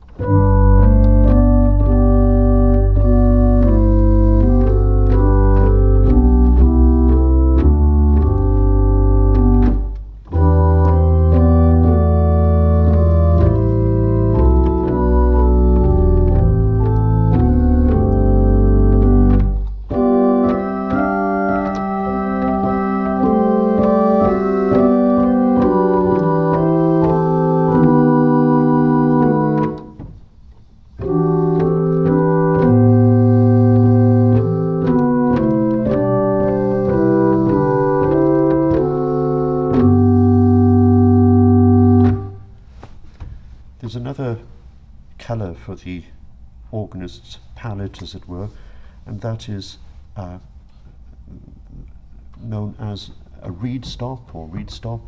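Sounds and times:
deep organ bass notes: 0.0s - 42.6s
pipe organ playing chords: 0.0s - 42.6s.

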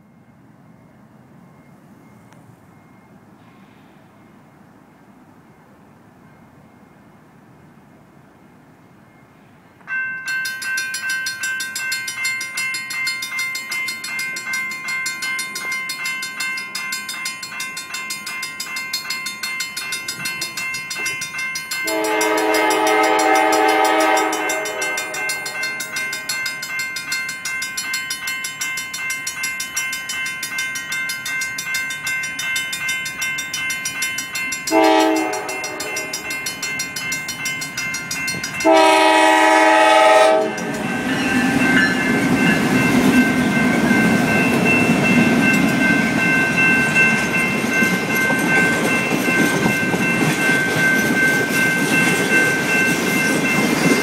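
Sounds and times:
crossing bell ringing: 0.0s - 4.6s, 8.9s - 54.0s
locomotive air horn: 21.9s - 25.2s, 34.7s - 36.1s, 38.6s - 40.7s.

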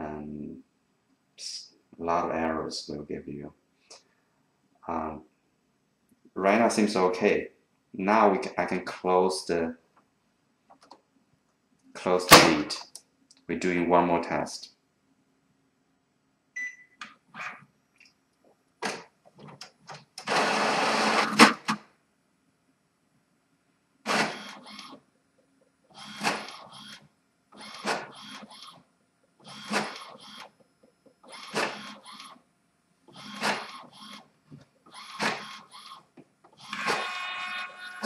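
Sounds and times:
printer paper-feed rush: 20.2s - 21.8s, 24.1s - 24.9s, 27.6s - 28.7s, 29.5s - 30.4s, 31.3s - 32.3s, 33.2s - 34.2s, 35.0s - 36.0s.

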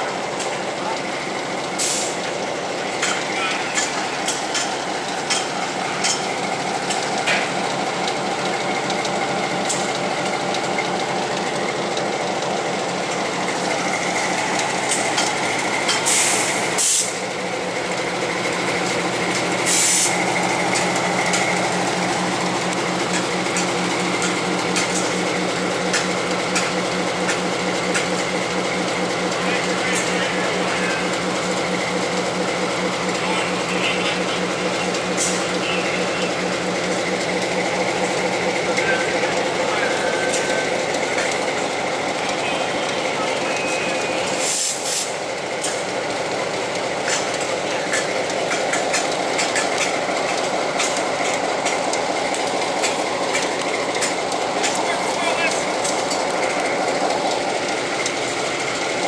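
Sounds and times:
diesel locomotive engine running: 0.0s - 59.0s
short bursts of hissing: 19.6s - 20.1s, 44.4s - 45.1s.

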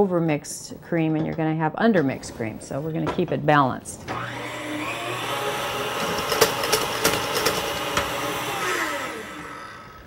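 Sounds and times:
stand mixer motor whipping cream: 4.1s - 10.0s.

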